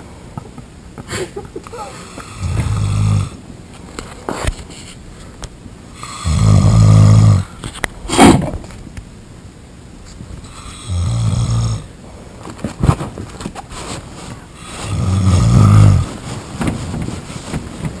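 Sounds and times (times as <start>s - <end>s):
person snoring: 1.8s - 3.4s, 6.0s - 7.5s, 10.5s - 12.0s, 14.6s - 16.1s.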